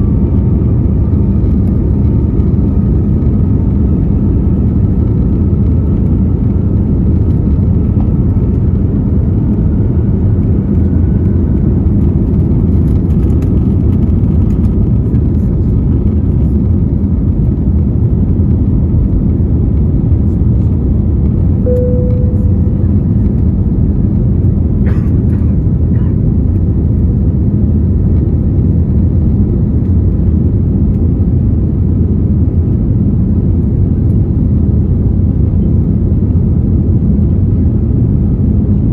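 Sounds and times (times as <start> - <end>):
jet engine cabin roar: 0.0 - 38.9
brief tone: 21.6 - 23.6.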